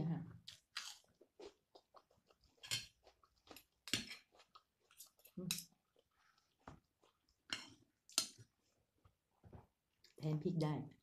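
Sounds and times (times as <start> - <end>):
crunchy chewing: 0.4 - 7.5.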